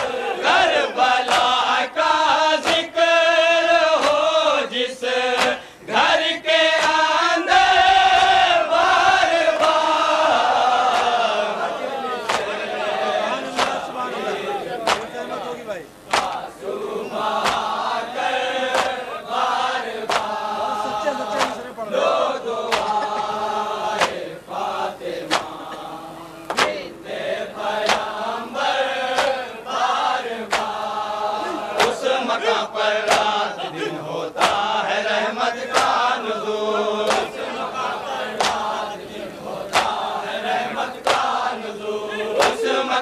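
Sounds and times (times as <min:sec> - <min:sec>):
men chanting in chorus: 0:00.0 - 0:43.0
chest-beating slaps: 0:01.2 - 0:01.7, 0:02.6 - 0:02.9, 0:05.4 - 0:05.7, 0:12.2 - 0:12.6, 0:13.5 - 0:13.9, 0:14.8 - 0:15.2, 0:16.1 - 0:16.5, 0:17.4 - 0:17.8, 0:18.7 - 0:19.0, 0:20.1 - 0:20.4, 0:21.4 - 0:21.6, 0:22.7 - 0:23.4, 0:24.0 - 0:24.3, 0:25.2 - 0:26.9, 0:27.8 - 0:28.2, 0:29.1 - 0:29.4, 0:30.5 - 0:30.8, 0:31.6 - 0:32.0, 0:33.0 - 0:33.4, 0:34.4 - 0:34.7, 0:35.7 - 0:36.0, 0:37.0 - 0:37.4, 0:38.4 - 0:38.7, 0:39.7 - 0:40.1, 0:41.0 - 0:41.4.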